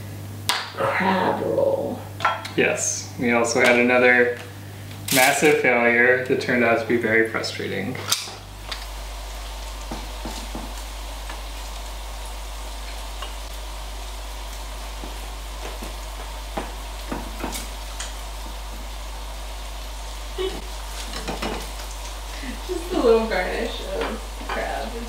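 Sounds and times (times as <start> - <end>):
food sizzling in frying pan: 8.1 - 25.0
low hum: 8.4 - 25.0.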